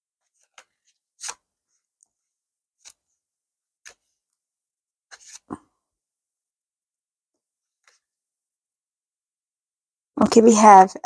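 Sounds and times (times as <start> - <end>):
paper pages turning: 0.2 - 1.8, 2.8 - 3.2, 3.8 - 4.2, 5.1 - 5.6.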